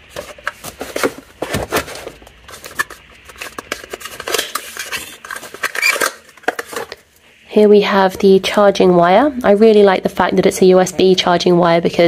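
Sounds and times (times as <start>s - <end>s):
cardboard rustling and scraping: 0.0s - 7.0s.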